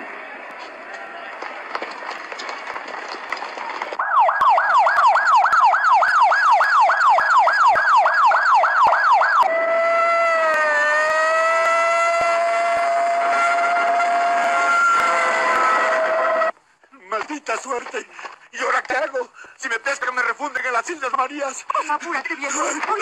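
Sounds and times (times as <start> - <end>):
ambulance siren: 4.0 - 16.5.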